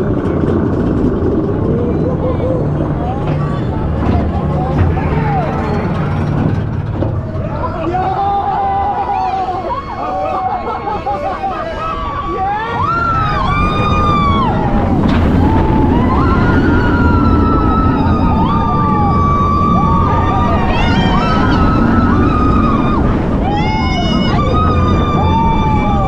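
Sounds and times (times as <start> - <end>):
roller coaster rumbling: 0.0 - 26.0
riders screaming: 7.4 - 26.0.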